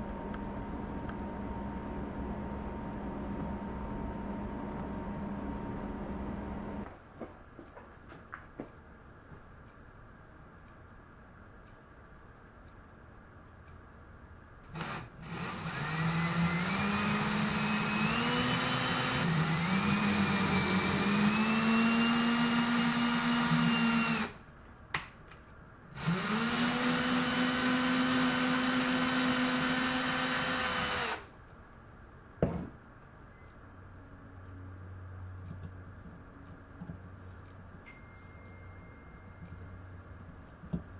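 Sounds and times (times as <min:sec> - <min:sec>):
drill clicks: 0:14.7 - 0:24.3, 0:26.0 - 0:31.3
cordless drill motor whirring: 0:14.7 - 0:24.4, 0:26.0 - 0:31.3.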